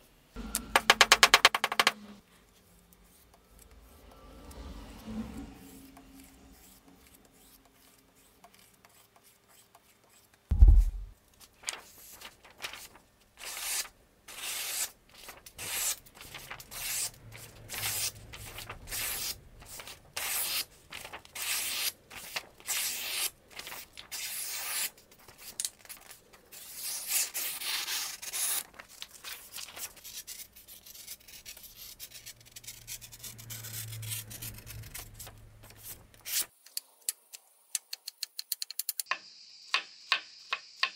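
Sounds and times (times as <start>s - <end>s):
heavy thump: 10.5s - 11.1s.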